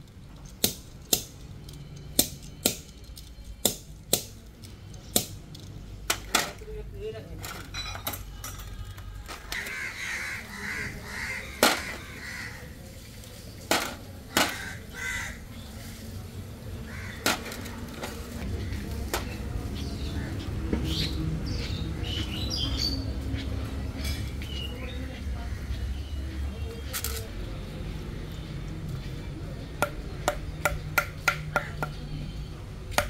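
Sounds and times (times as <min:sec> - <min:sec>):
crow cawing: 0:09.5 - 0:12.8, 0:14.3 - 0:15.5, 0:16.9 - 0:17.5.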